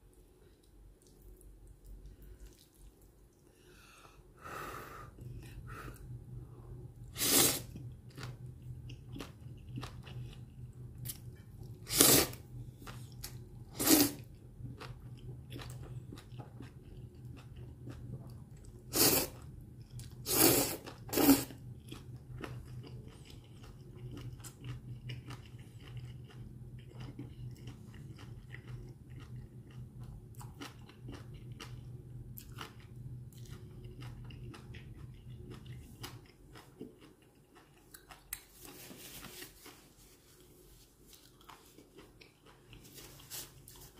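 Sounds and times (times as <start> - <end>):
wet chewing: 0.4 - 3.4, 7.6 - 43.9
person slurping noodles: 7.1 - 7.8, 11.8 - 12.4, 13.7 - 14.3, 18.9 - 19.4, 20.2 - 21.5.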